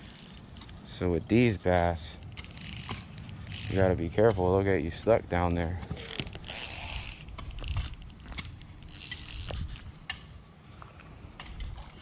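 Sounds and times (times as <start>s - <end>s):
fishing reel cranking clicks: 0.0s - 4.3s, 5.4s - 9.9s.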